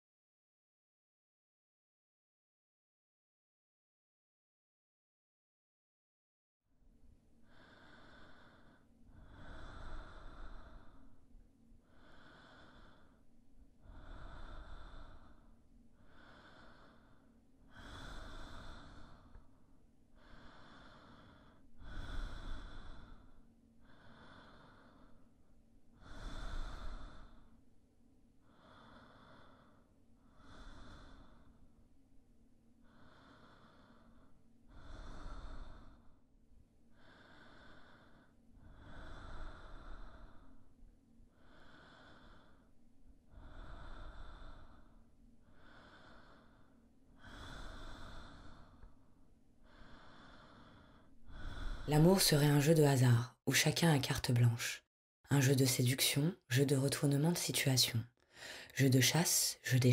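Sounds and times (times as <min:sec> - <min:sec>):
person breathing slowly: 0:07.3 - 0:52.3, 0:58.2 - 0:59.4.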